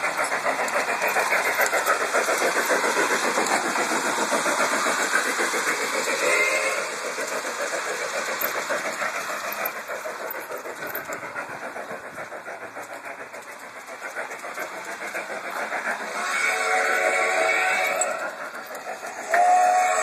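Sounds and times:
model steam locomotive chuffing: 0:00.0 - 0:20.0
steam whistle: 0:06.2 - 0:06.9, 0:16.1 - 0:18.3, 0:19.2 - 0:20.0.

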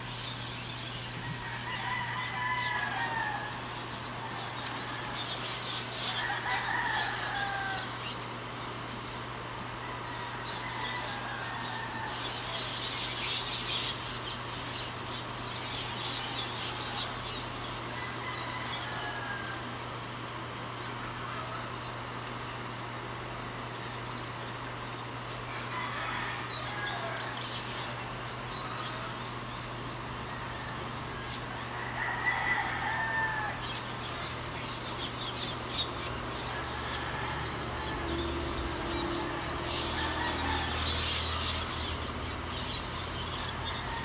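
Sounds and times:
steady low hum: 0:00.0 - 0:44.0
rooster crowing: 0:01.2 - 0:08.2, 0:09.8 - 0:13.0, 0:15.8 - 0:20.0, 0:25.5 - 0:28.0, 0:30.2 - 0:44.0.

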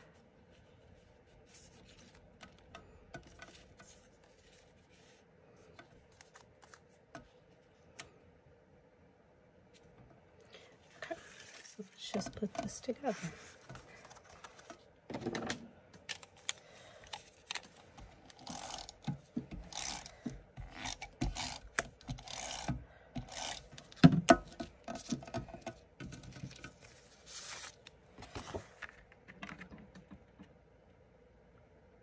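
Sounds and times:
paper swishes and rustles: 0:26.8 - 0:29.1.

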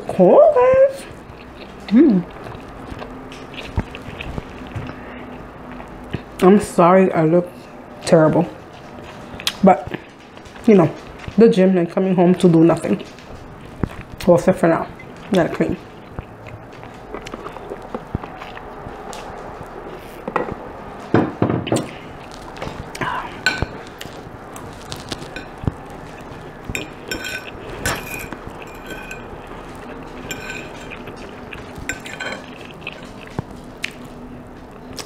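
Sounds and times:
fork scraping ceramic plate: 0:26.7 - 0:33.2.

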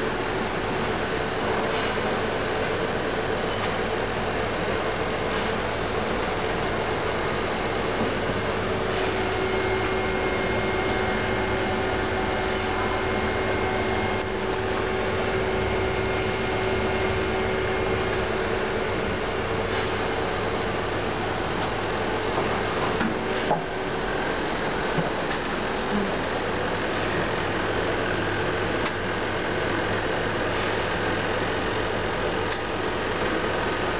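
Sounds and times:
industrial machinery humming: 0:00.0 - 0:33.9
faint high whine: 0:06.9 - 0:22.2.

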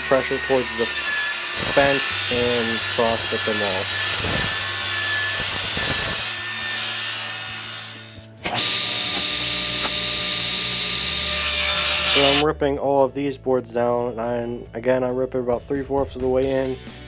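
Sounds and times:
circular saw cutting plywood: 0:00.0 - 0:12.4
table saw motor humming: 0:00.0 - 0:12.4.

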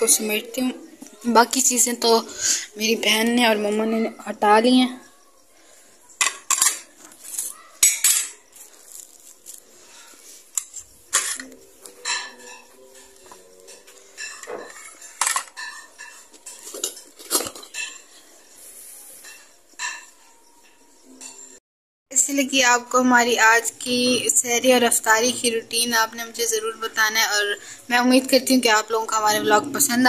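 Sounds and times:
dishes clinking together: 0:06.2 - 0:07.0, 0:07.8 - 0:08.5, 0:10.6 - 0:18.3, 0:19.2 - 0:21.6.

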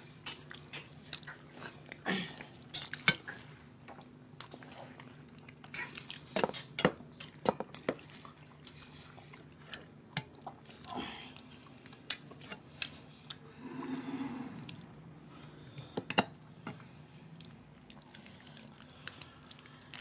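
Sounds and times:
chewing: 0:00.0 - 0:15.0, 0:16.7 - 0:20.0.

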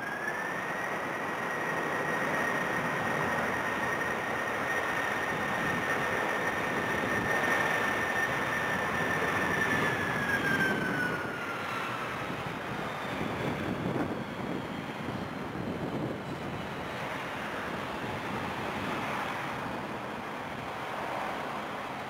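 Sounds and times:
jet engines whining and rumbling: 0:00.0 - 0:22.0
wind on microphone: 0:05.2 - 0:20.6.

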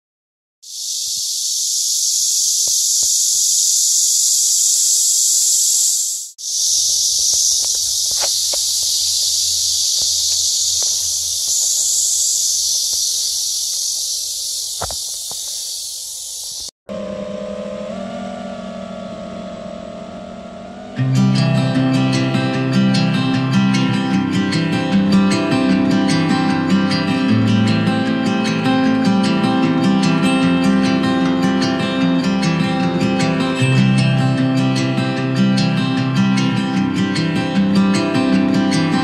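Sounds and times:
high-pitched insect chorus: 0:00.6 - 0:16.7
acoustic guitar music: 0:19.2 - 0:39.0.

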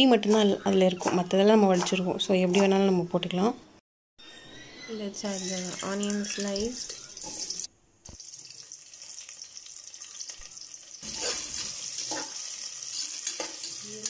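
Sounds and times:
onions sizzling in oil: 0:05.3 - 0:14.0
spoon scraping pan: 0:11.0 - 0:14.0.

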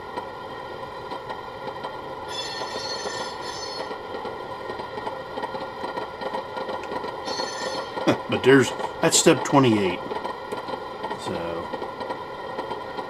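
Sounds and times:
generator sound from small speaker: 0:02.3 - 0:04.1, 0:06.8 - 0:11.8.

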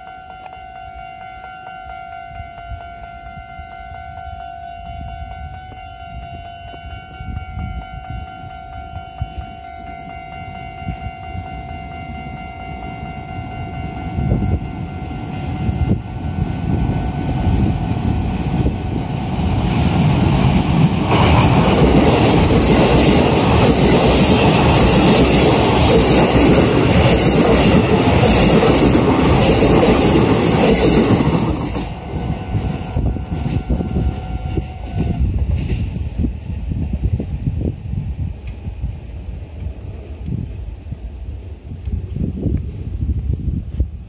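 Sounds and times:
level crossing warning bell: 0:00.0 - 0:16.6
electric train running: 0:06.2 - 0:39.8
train wheels clacking on rail joints: 0:20.0 - 0:36.1.

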